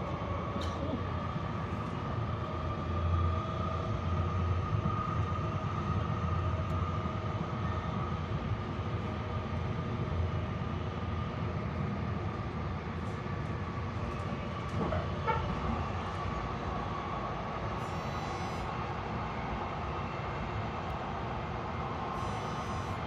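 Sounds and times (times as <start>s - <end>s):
train wheels rumbling on track: 0.0s - 18.0s
thin steady whine: 13.1s - 23.0s.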